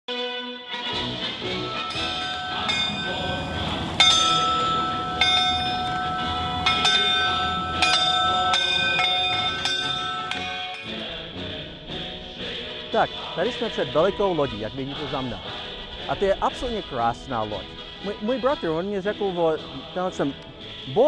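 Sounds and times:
ringing bell tones: 1.5s - 11.0s.

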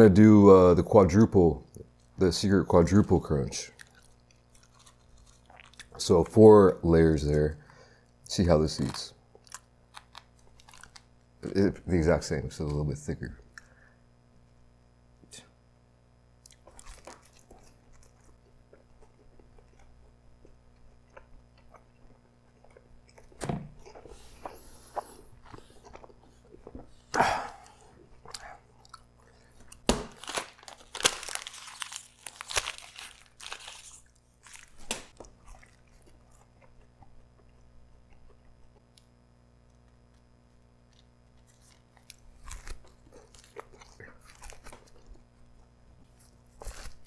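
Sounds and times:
pizza crust crunching: 2.9s - 7.5s, 8.3s - 11.7s, 16.4s - 39.1s, 39.7s - 47.0s
chewing: 3.7s - 6.0s, 16.4s - 29.8s, 33.8s - 47.0s.

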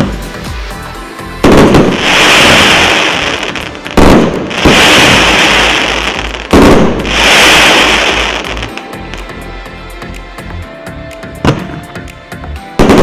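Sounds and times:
firework bangs: 1.4s - 8.8s, 12.8s - 13.0s
loud dense firework hiss: 1.4s - 8.8s.

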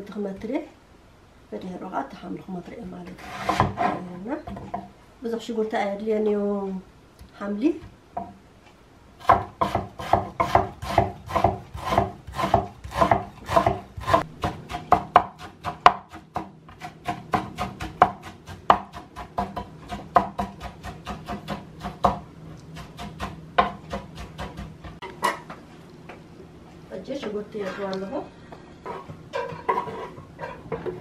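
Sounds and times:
knife chopping on wooden board: 3.4s - 4.9s, 9.2s - 22.2s, 22.8s - 25.0s.

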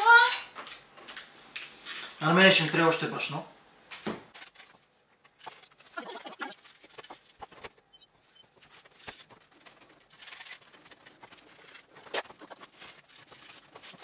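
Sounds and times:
hands kneading dough: 8.5s - 14.0s.

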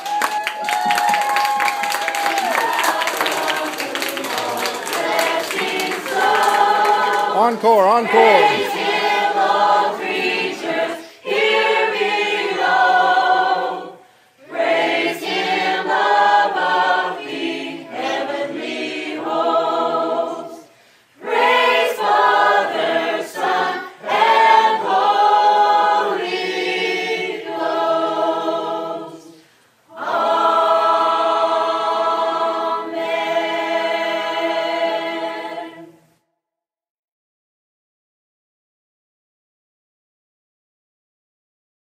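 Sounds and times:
group singing a cappella: 2.4s - 36.1s.

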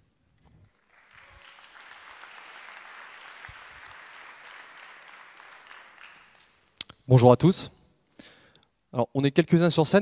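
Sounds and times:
audience applauding: 0.6s - 6.6s.

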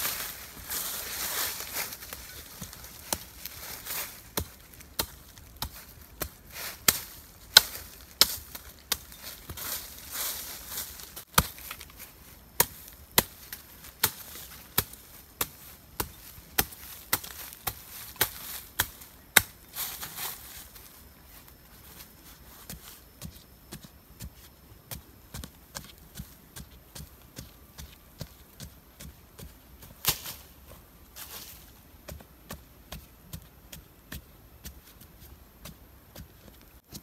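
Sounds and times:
dry leaf litter rustling: 0.0s - 23.0s.

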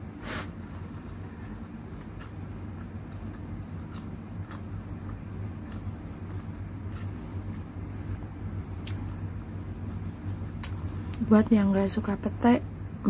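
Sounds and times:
electric fan humming: 0.0s - 13.0s
chewing clicks: 0.7s - 7.6s.

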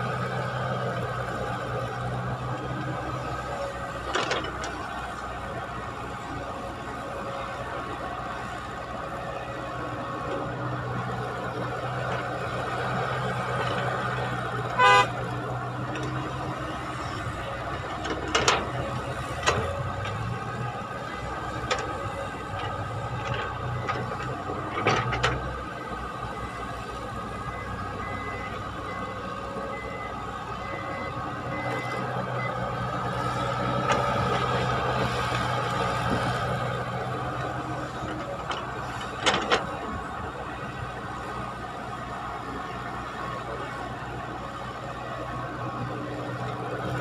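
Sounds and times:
excavator diesel engine running: 0.0s - 47.0s
horn toot: 14.8s - 15.1s.

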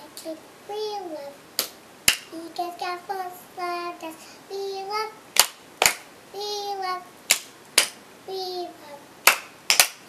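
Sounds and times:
girl singing: 0.0s - 1.4s, 2.3s - 5.2s, 6.3s - 7.1s, 8.3s - 9.1s
hand claps: 1.6s - 2.3s, 5.4s - 6.1s, 7.3s - 8.0s, 9.2s - 10.0s.

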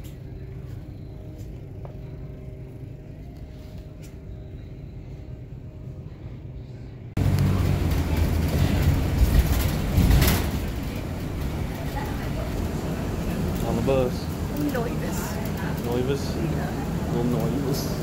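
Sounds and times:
faint hum: 0.0s - 18.0s
vehicle rumble: 0.0s - 18.0s
loud road and engine noise: 7.2s - 18.0s.

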